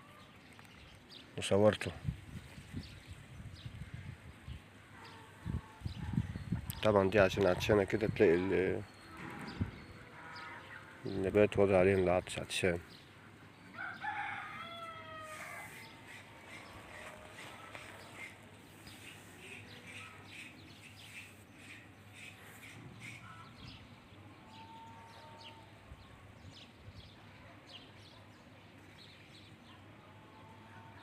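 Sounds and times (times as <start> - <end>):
small birds chirping: 0.0 - 30.6.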